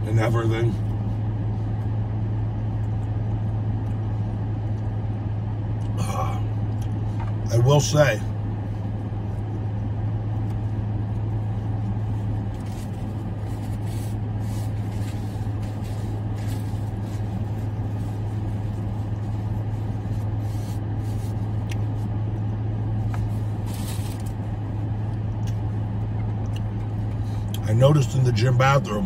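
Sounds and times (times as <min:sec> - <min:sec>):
car cabin engine and fan hum: 0:00.0 - 0:29.0
paper napkin rustling: 0:12.0 - 0:22.1, 0:23.0 - 0:24.5.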